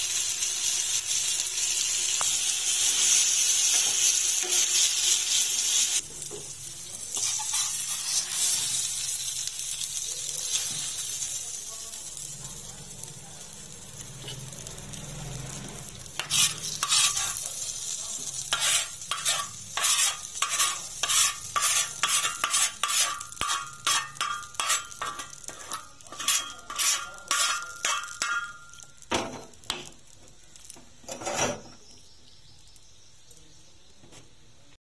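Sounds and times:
eggplant sizzling on iron griddle: 0:00.0 - 0:34.8
metal spatula scraping griddle: 0:07.1 - 0:09.0, 0:14.2 - 0:14.6, 0:16.0 - 0:29.6, 0:31.0 - 0:31.8.

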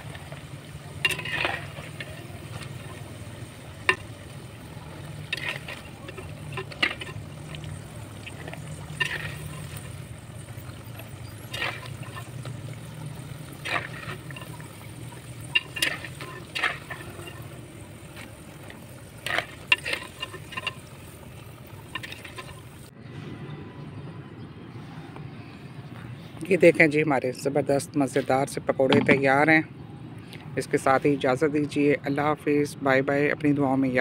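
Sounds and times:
oil sizzling and bubbling: 0:00.0 - 0:23.0.

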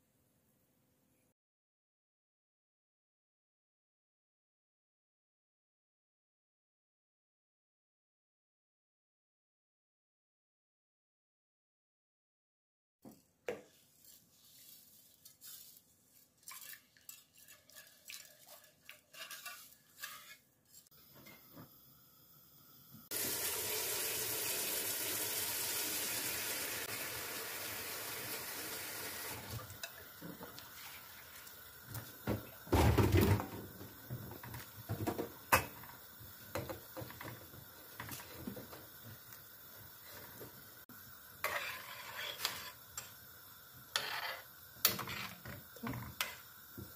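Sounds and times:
boiling brine hissing: 0:14.4 - 0:46.9
whisk clinking against metal pot: 0:16.4 - 0:20.8.

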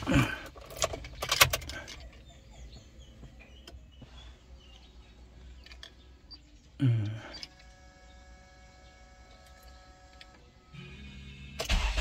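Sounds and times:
car engine idling: 0:00.0 - 0:12.0
ignition key clicking and jingling: 0:00.4 - 0:02.4.

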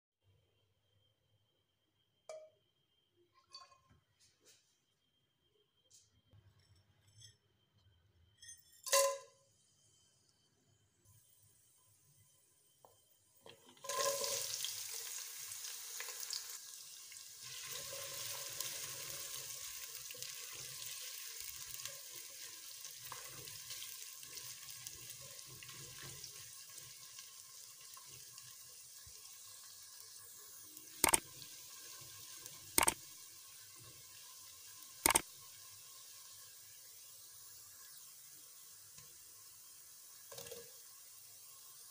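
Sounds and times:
onions sizzling in hot oil: 0:08.9 - 0:41.9.

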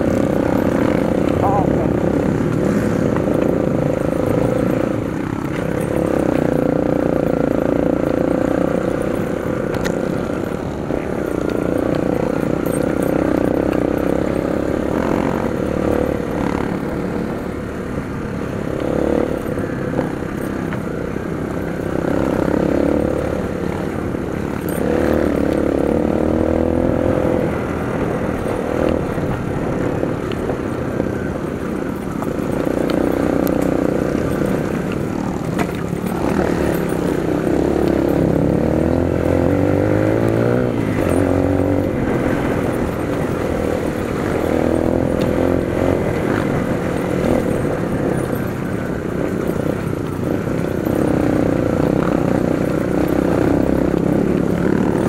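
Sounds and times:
dirt bike engine revving: 0:00.0 - 0:30.2, 0:31.2 - 0:55.0.

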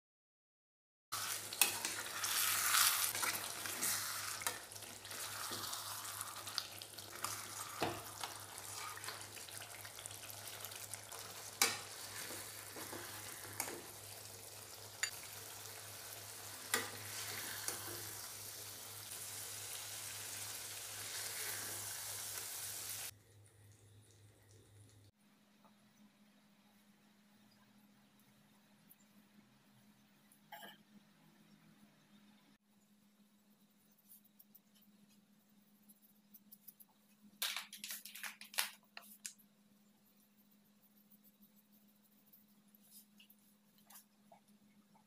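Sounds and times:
gravy sizzling in a pan: 0:01.1 - 0:23.1.

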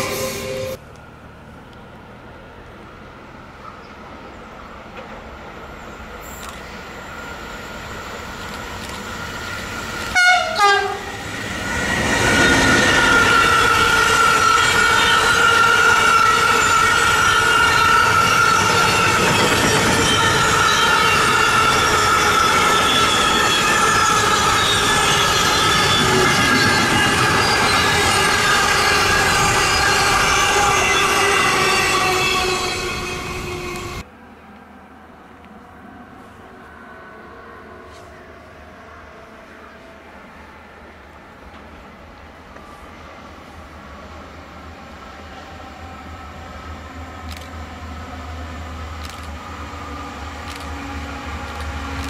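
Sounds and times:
train passing: 0:00.0 - 0:52.0
train horn blasts: 0:10.1 - 0:11.2, 0:12.6 - 0:34.0.

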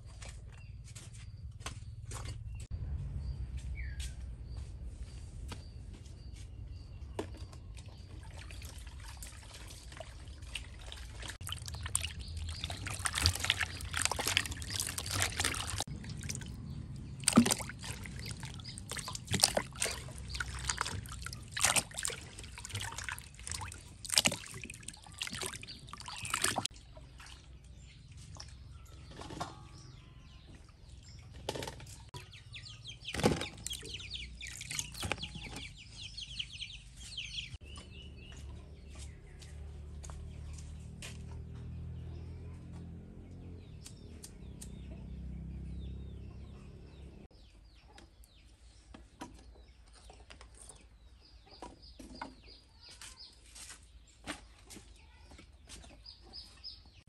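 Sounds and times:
birds chirping: 0:00.0 - 0:57.0
water splashing and pouring: 0:07.8 - 0:27.6, 0:33.1 - 0:35.7.

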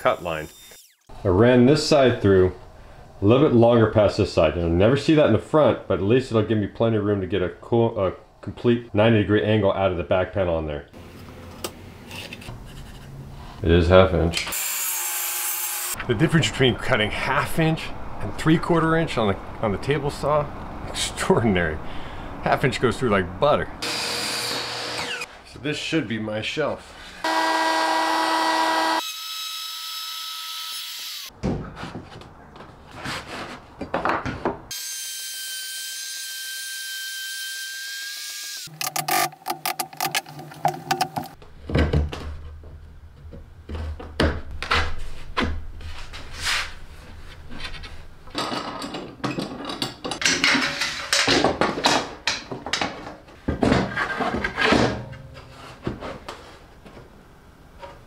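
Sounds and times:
router motor whining: 0:23.8 - 0:25.3, 0:27.2 - 0:29.0
hand tool knocks and scraping: 0:38.9 - 0:42.3.

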